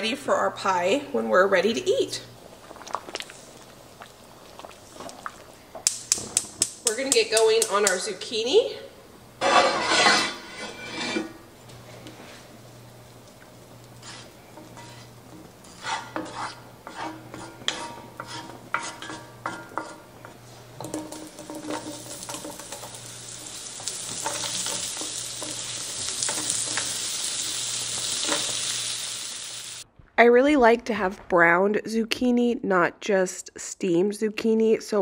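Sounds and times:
wooden spatula scraping skillet: 9.4s - 11.4s, 13.9s - 28.9s
vegetables sizzling in butter: 13.0s - 29.8s.

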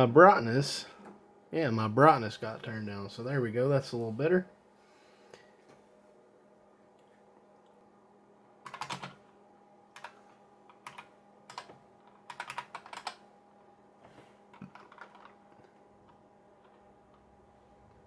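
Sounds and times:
faint steady hum: 0.0s - 18.0s
keyboard typing: 8.6s - 9.2s, 10.0s - 13.3s, 14.5s - 17.3s.

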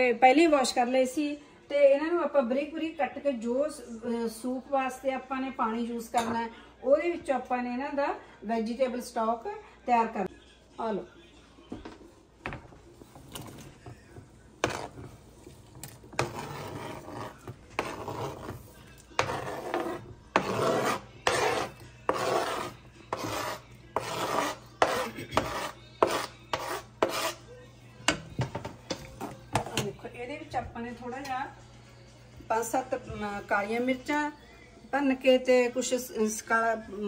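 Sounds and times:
spoon scraping cutting board: 14.6s - 27.5s, 28.1s - 30.0s.

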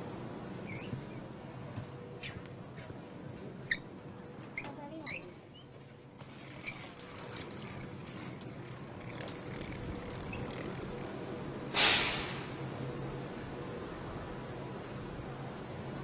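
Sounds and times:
train humming: 0.0s - 6.6s, 7.2s - 16.0s
compressed air hiss: 11.7s - 12.6s.

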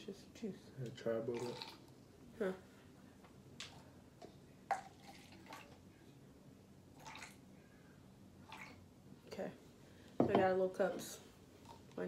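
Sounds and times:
juice pouring into cups: 1.3s - 2.0s, 4.7s - 5.8s, 6.9s - 7.4s.

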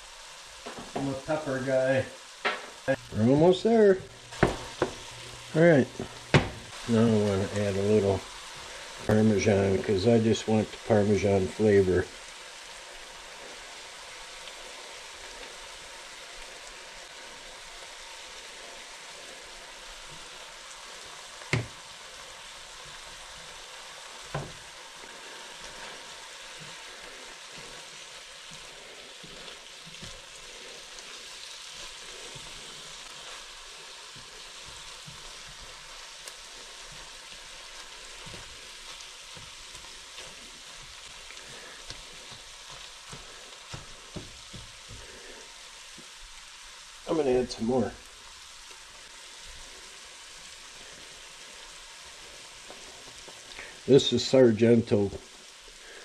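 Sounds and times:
food sizzling in a skillet: 0.0s - 56.0s
spatula stirring: 21.0s - 45.5s.

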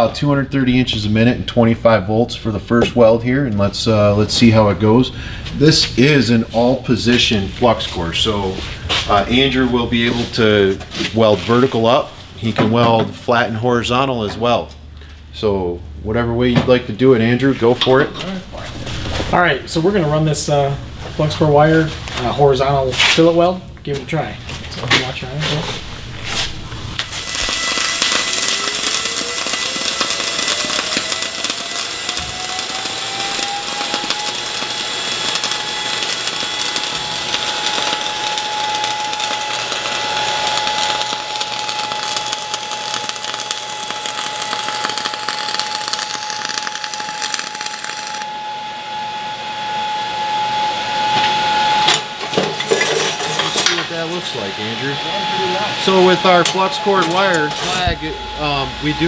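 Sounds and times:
thin whine: 0.6s - 59.0s
welding arc crackling hiss: 25.0s - 48.4s, 51.2s - 59.0s.

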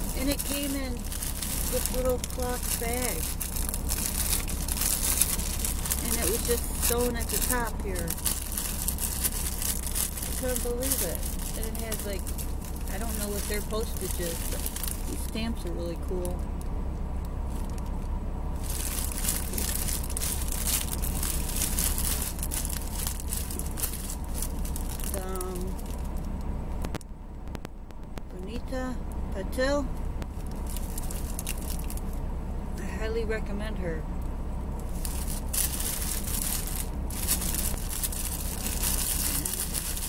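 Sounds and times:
plastic packaging crinkling: 0.0s - 16.6s, 17.5s - 26.4s, 30.3s - 32.2s, 34.8s - 40.0s
low hum: 0.0s - 40.0s
cloth pouch rustling: 34.8s - 40.0s.

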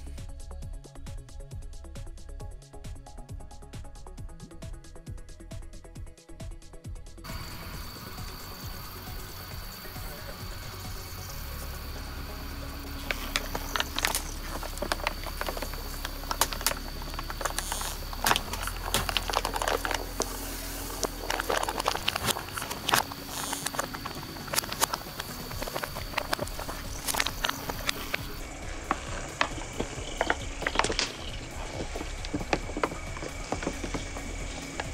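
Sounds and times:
soda fizzing and popping: 12.9s - 34.9s.

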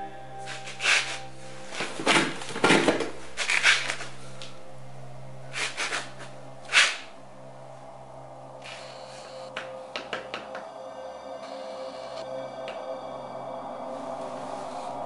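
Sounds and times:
low steady drone: 0.0s - 15.0s.

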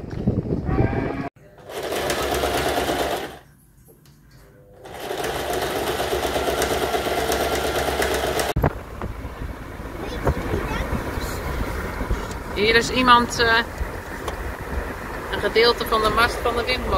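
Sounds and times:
electric sewing machine stitching: 1.6s - 3.4s, 4.8s - 8.6s.

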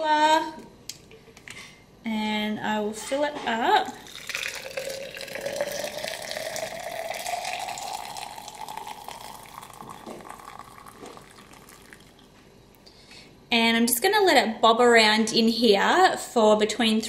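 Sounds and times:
water poured into a glass: 4.0s - 12.3s.

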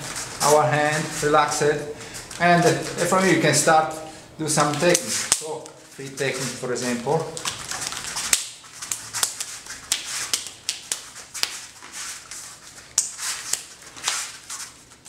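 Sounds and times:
sleeves swishing: 0.0s - 4.0s, 4.6s - 15.0s
hands slapping against forearms: 7.3s - 11.7s, 12.9s - 14.3s.

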